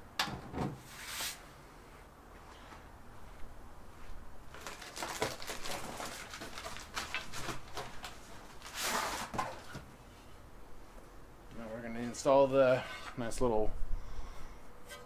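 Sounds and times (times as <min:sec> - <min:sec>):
clicks and rustles of handling: 0:04.5 - 0:09.8.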